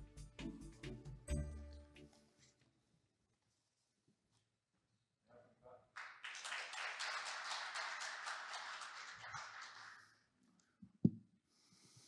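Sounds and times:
audience applauding: 6.0s - 10.3s.

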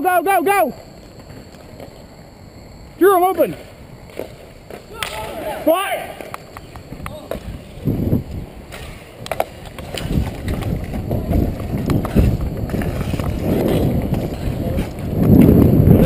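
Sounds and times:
skate wheels rolling: 0.3s - 16.0s
wind rumbling on microphone: 6.5s - 16.0s
stick pushing puck: 8.7s - 15.1s.

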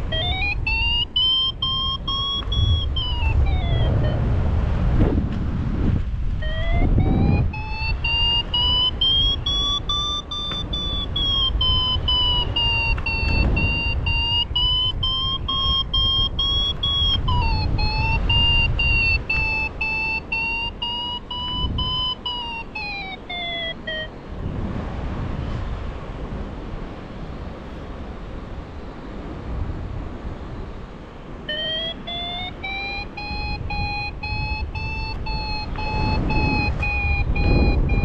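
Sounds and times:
variometer tone: 0.0s - 5.2s, 6.2s - 24.4s, 31.3s - 38.0s
wind buffeting microphone: 0.0s - 38.0s.

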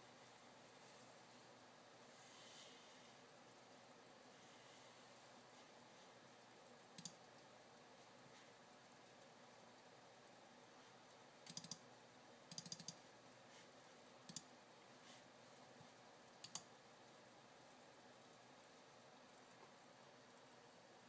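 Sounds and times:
faint room hiss: 0.0s - 21.0s
computer keyboard clicks: 7.0s - 7.2s, 11.4s - 11.8s, 12.5s - 13.0s, 14.3s - 14.5s, 16.4s - 16.7s.

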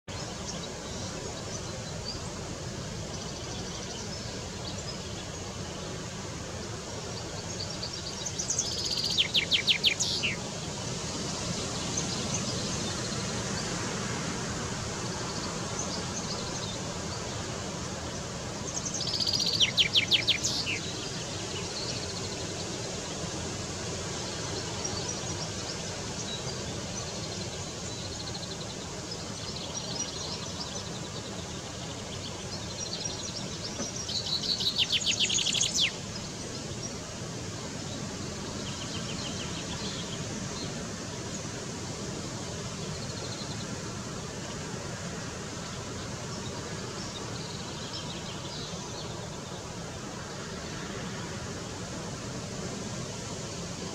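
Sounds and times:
steady background noise: 0.1s - 53.9s
chaffinch singing: 6.7s - 13.8s, 14.8s - 23.2s, 24.2s - 37.1s.

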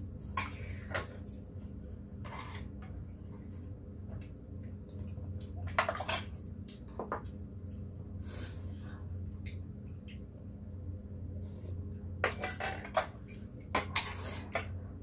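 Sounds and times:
steady low hum: 0.0s - 15.0s
utensils clinking on bowls: 12.2s - 14.2s.

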